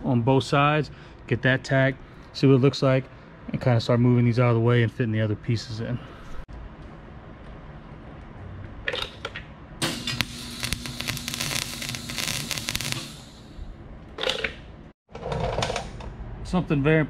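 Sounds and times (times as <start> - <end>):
welding arc crackling: 9.8 - 13.6.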